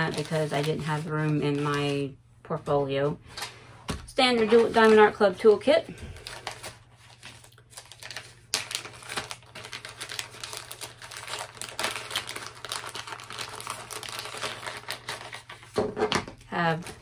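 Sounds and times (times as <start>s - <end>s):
plastic packaging crinkling: 0.0s - 2.1s, 6.1s - 15.8s.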